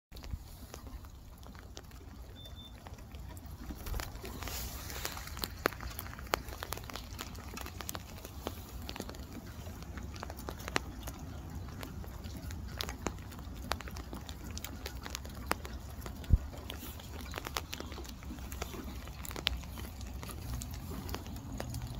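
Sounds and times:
raindrops tapping: 0:00.1 - 0:21.9.

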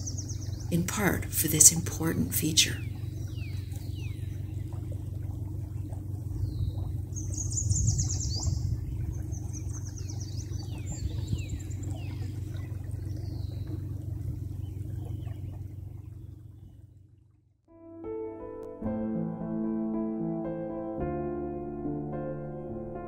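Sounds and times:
songbirds singing: 0:00.0 - 0:17.3
low motor hum: 0:00.0 - 0:17.7, 0:18.6 - 0:23.0.

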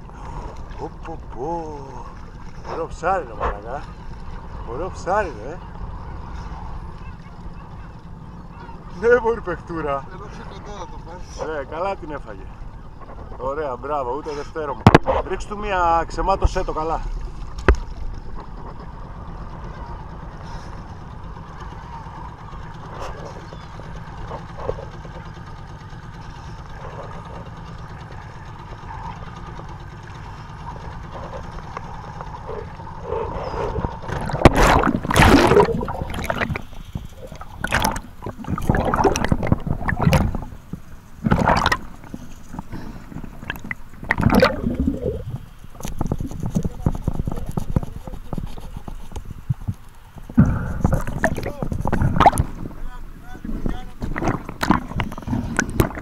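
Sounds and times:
boat engine idling: 0:00.0 - 0:56.0
water lapping: 0:00.0 - 0:56.0
water splashing and gurgling: 0:16.9 - 0:56.0.

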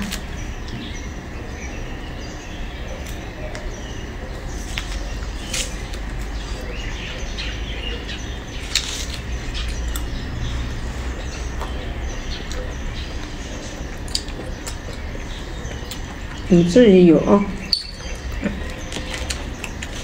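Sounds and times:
steady low hum: 0:00.0 - 0:20.0
orange rind crackling: 0:04.6 - 0:06.7, 0:08.5 - 0:10.4, 0:17.7 - 0:20.0.

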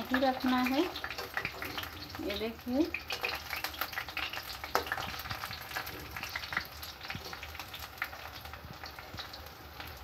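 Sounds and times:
food sizzling in hot oil: 0:00.0 - 0:10.0.

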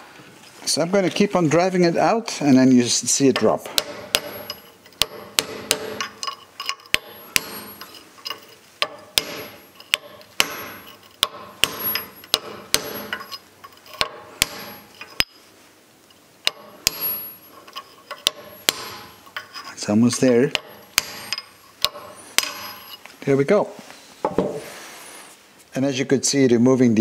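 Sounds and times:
hammer striking metal: 0:03.4 - 0:08.0, 0:08.8 - 0:13.4, 0:14.0 - 0:15.4, 0:16.5 - 0:17.5, 0:18.2 - 0:19.4, 0:20.1 - 0:23.0.

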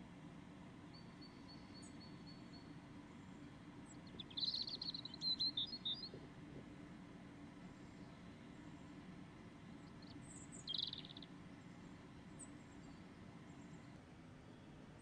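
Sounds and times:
small bird chirping: 0:03.9 - 0:06.2, 0:09.8 - 0:11.3.

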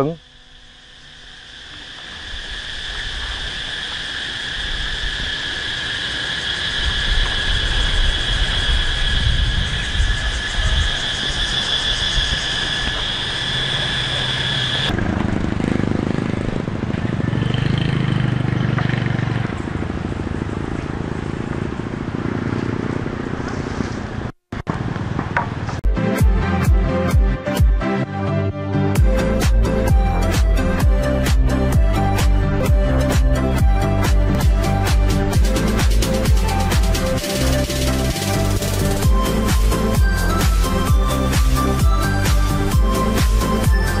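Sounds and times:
high-pitched drone: 0:00.0 - 0:15.0, 0:29.0 - 0:44.0
two-stroke engine running: 0:13.0 - 0:24.2.

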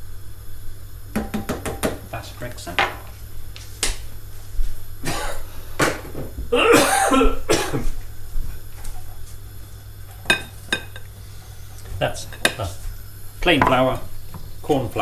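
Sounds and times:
person coughing: 0:05.0 - 0:05.4, 0:06.5 - 0:08.0.

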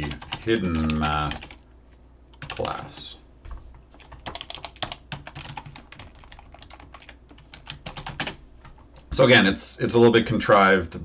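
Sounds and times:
computer keyboard typing: 0:00.0 - 0:01.6, 0:02.3 - 0:03.1, 0:03.9 - 0:09.1.

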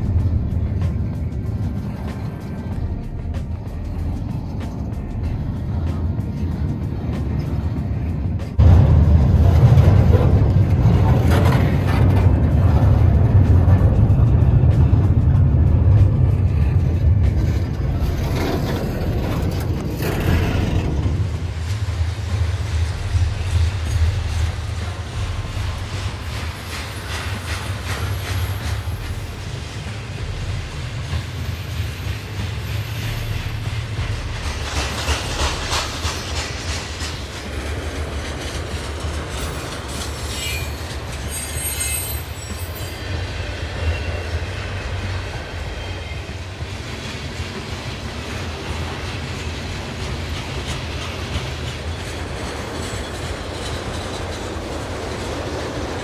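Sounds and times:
rail cars rumbling: 0:00.0 - 0:56.0
wheels clacking over rail joints: 0:00.0 - 0:56.0
high wheel squeals: 0:39.4 - 0:44.9.

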